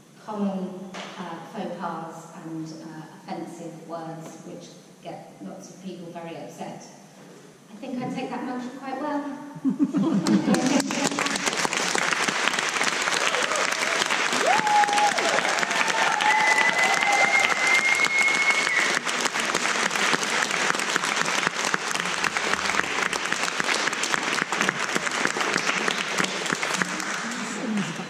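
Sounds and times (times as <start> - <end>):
audience applauding: 10.2 - 28.0
person whooping: 13.2 - 19.0.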